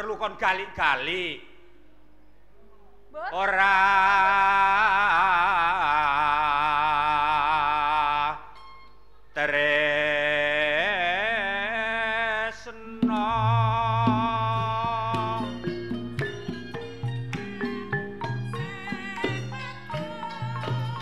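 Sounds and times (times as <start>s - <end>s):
person singing long wavering notes: 13.0s - 16.4s, 17.2s - 21.0s
drum strokes: 13.0s - 21.0s.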